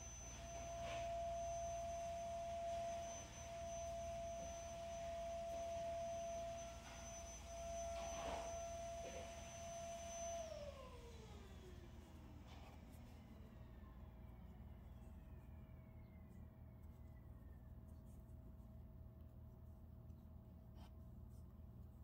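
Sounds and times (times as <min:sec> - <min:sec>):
low hum: 0:00.0 - 0:11.7
faint whine: 0:00.0 - 0:22.0.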